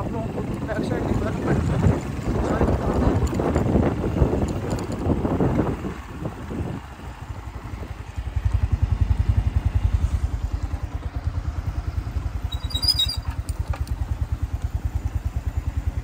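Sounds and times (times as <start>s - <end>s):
motorcycle engine putter: 0.0s - 6.0s, 12.2s - 16.0s
high squeak: 12.4s - 13.4s.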